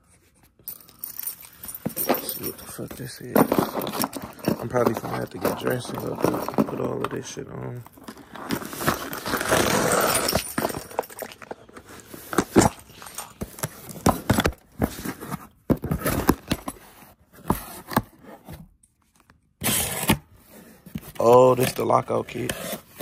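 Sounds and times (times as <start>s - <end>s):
packaging rustling and crinkling: 2.3s - 16.6s.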